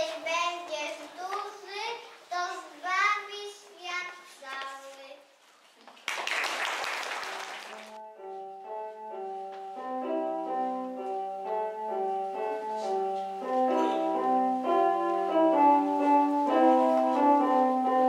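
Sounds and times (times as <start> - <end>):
audience clapping: 5.8 - 8.0
electronic keyboard piano melody: 7.9 - 18.0.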